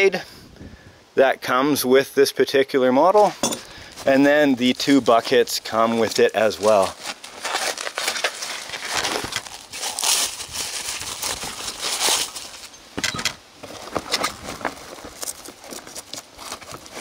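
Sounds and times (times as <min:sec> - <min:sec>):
plastic wrap crinkling: 0:03.8 - 0:12.8, 0:13.6 - 0:17.0.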